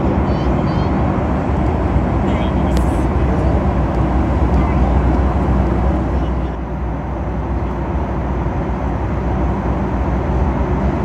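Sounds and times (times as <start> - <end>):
airplane cabin drone: 0.0 - 11.0.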